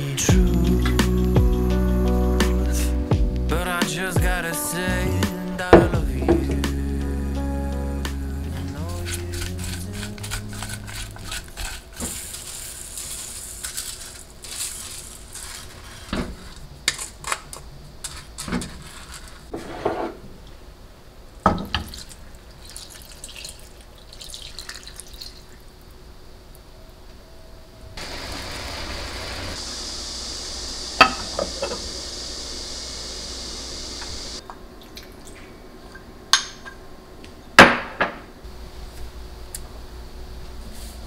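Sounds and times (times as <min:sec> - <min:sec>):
steady hiss: 0:00.0 - 0:21.4, 0:25.6 - 0:34.4
spatula stirring vegetables in pot: 0:08.9 - 0:17.4
water pouring over rice: 0:21.8 - 0:25.6.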